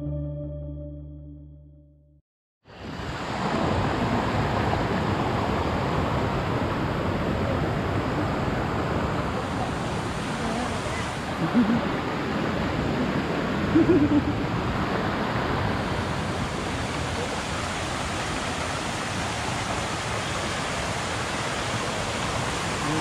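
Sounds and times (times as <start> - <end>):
rushing water: 2.7 - 23.0.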